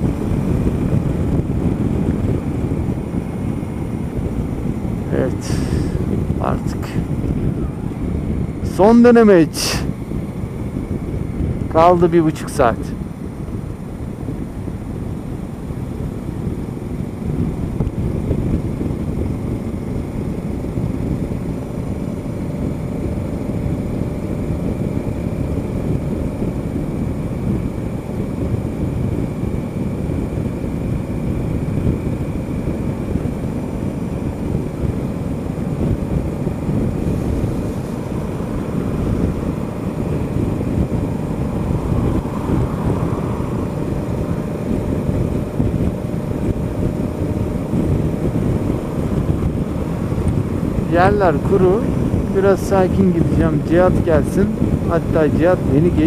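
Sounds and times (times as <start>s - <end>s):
wind buffeting microphone: 0.0s - 56.0s
motorcycle engine cruising: 12.9s - 56.0s
car passing: 37.1s - 45.6s.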